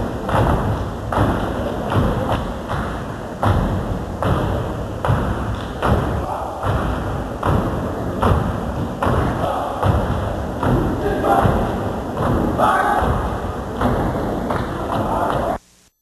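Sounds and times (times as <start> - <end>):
synchronized foot stomps: 0.0 - 15.6
hand claps: 13.8 - 15.5.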